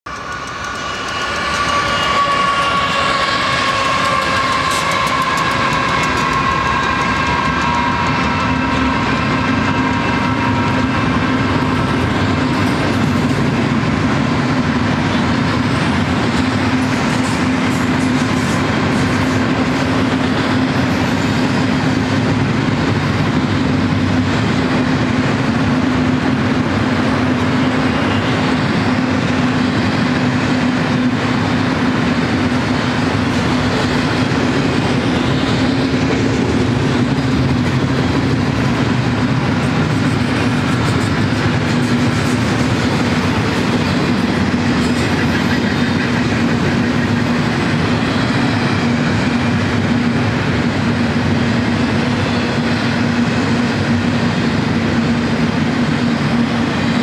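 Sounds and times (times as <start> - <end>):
train horn chord: 0.1 - 10.9
train wheels clattering: 0.1 - 57.0.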